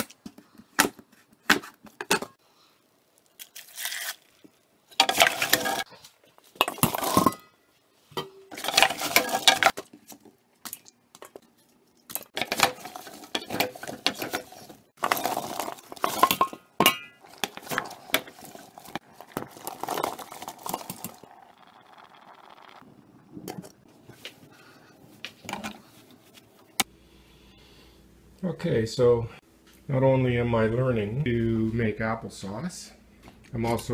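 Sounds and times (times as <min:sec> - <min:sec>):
apples tumbling into metal pot: 0:04.9 - 0:05.9, 0:06.5 - 0:07.5, 0:08.1 - 0:10.0, 0:12.2 - 0:21.3
wooden spoon stirring apples: 0:12.3 - 0:21.7.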